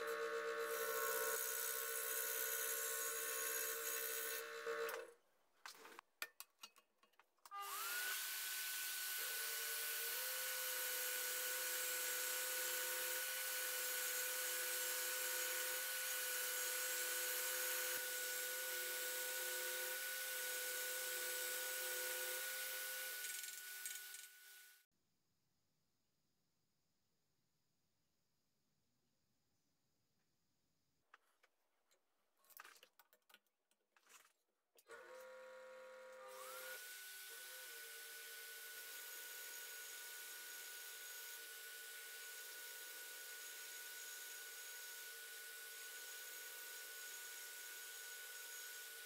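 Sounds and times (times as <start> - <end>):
scroll saw cutting wood: 0.0 - 5.1, 7.5 - 24.8, 34.8 - 49.0.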